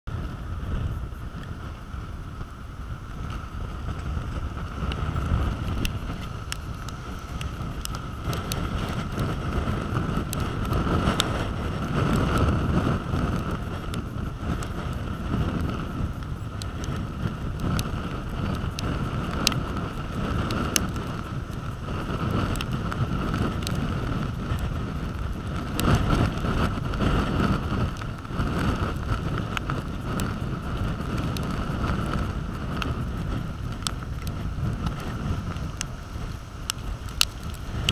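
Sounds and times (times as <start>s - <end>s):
storm wind buffeting microphone: 0.1s - 37.9s
surf breaking on beach: 0.1s - 37.9s
faint ticks: 2.4s - 37.9s.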